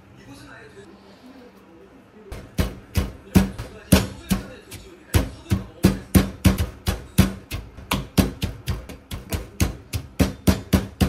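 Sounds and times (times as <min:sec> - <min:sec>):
pestle pounding in stone mortar: 0:02.3 - 0:11.0.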